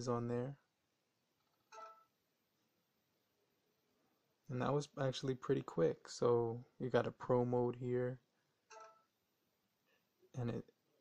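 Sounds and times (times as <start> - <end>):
faint phone camera tone: 1.6 - 2.2, 8.7 - 9.2.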